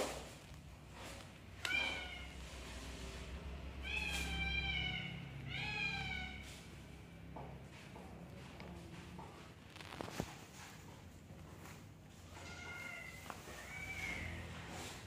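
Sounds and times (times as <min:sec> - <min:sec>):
cat meowing: 0:01.6 - 0:02.5, 0:03.8 - 0:06.6, 0:12.3 - 0:14.9.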